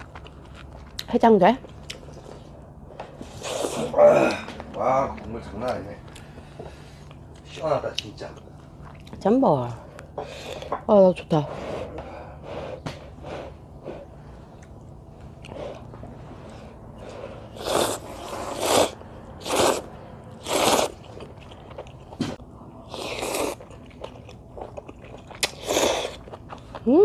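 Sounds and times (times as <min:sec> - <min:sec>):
person slurping noodles: 0:17.1 - 0:21.2, 0:25.4 - 0:26.2.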